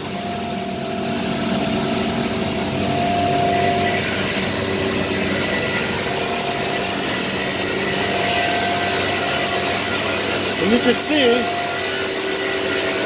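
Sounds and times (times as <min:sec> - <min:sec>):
router bit cutting into board: 0:03.0 - 0:13.0.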